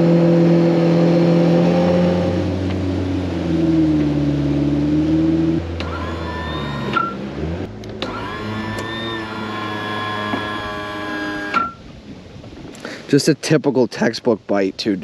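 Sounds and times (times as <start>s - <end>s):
high whine: 0.0s - 11.9s
outboard motor running: 0.0s - 12.9s.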